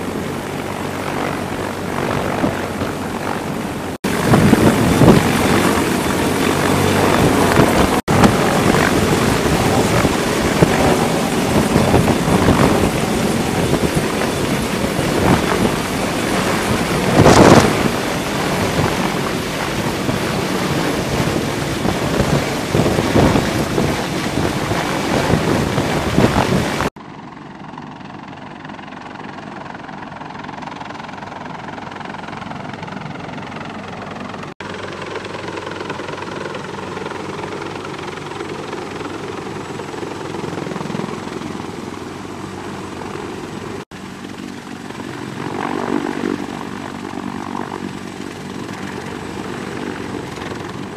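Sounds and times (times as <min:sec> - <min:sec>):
rotor downwash buffeting microphone: 0:00.0 - 0:26.9
helicopter hovering: 0:00.0 - 0:50.9.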